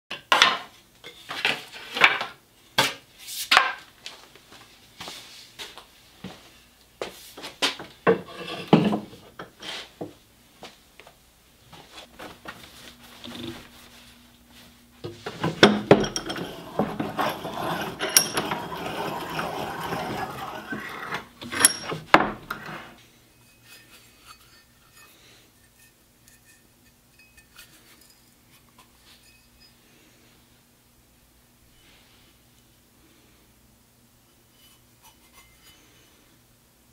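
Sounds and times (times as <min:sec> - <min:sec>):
steady scraping: 0:15.1 - 0:23.0.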